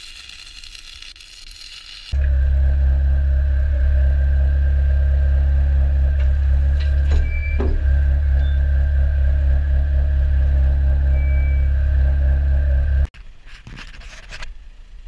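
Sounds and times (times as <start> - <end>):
machine engine running: 2.1 - 13.1
chains rattling and creaking: 6.1 - 9.1.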